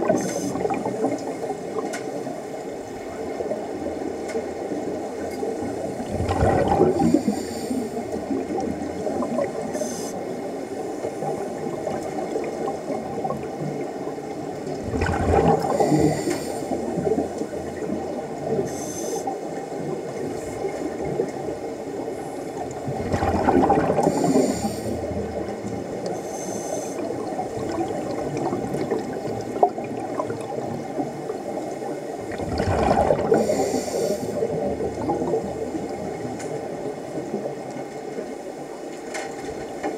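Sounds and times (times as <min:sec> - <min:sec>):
exhaled bubbles rumbling: 0:00.0 - 0:09.8, 0:11.0 - 0:18.7, 0:19.5 - 0:26.2, 0:27.0 - 0:38.3
steady underwater hiss: 0:00.0 - 0:39.9
hissing inhalations: 0:26.2 - 0:27.1, 0:33.4 - 0:34.4.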